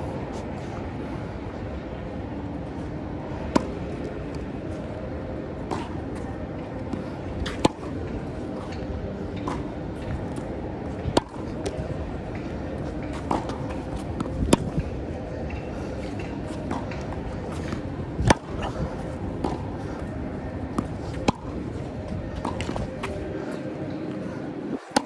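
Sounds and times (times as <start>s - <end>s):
low background hum: 0.0s - 25.0s
racquet hitting tennis ball: 13.1s - 14.9s, 16.1s - 19.8s, 20.7s - 21.7s.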